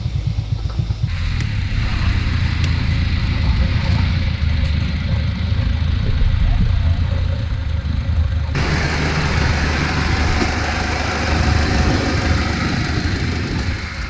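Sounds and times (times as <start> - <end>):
engine humming: 0.0 - 14.0.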